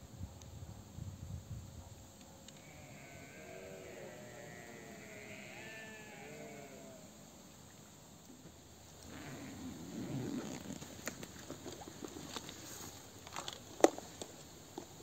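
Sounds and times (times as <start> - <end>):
faint animal calls: 2.5 - 7.2, 9.0 - 10.8.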